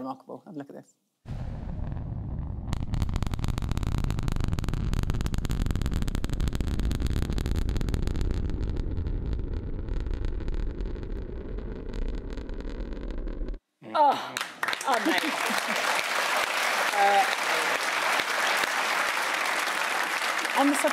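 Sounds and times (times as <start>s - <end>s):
rocket engines rumbling and crackling: 1.4s - 13.6s.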